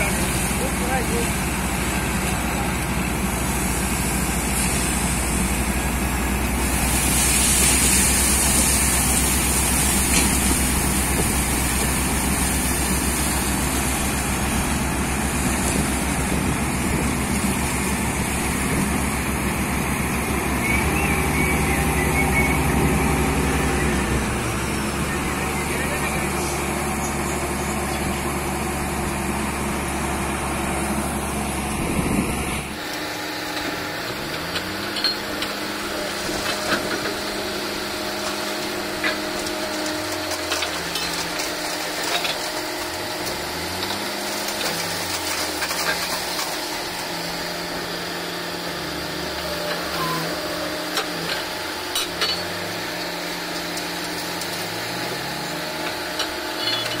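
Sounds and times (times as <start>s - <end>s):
drilling rig rumbling: 0.0s - 57.0s
metallic clanks: 55.8s - 57.0s.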